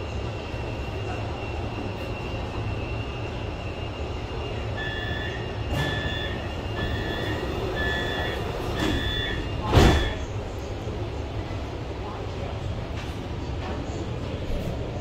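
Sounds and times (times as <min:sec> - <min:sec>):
low hum of stopped train: 0:00.0 - 0:15.0
door warning beeps: 0:04.4 - 0:10.3
train doors thudding shut: 0:05.6 - 0:10.3.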